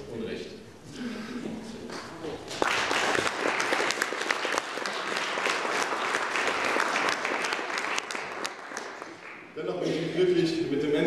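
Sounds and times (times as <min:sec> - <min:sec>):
audience applauding: 0:02.5 - 0:09.5.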